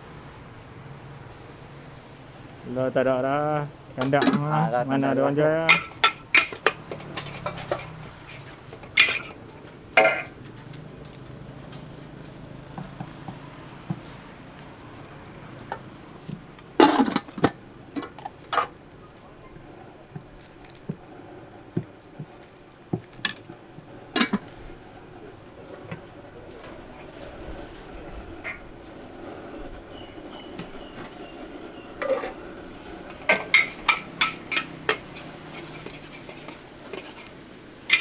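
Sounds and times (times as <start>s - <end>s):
low background noise: 0.0s - 38.0s
utensils clinking against pots: 4.0s - 4.7s, 5.6s - 9.4s, 10.0s - 10.4s, 24.1s - 24.5s, 32.0s - 32.4s, 33.1s - 38.0s.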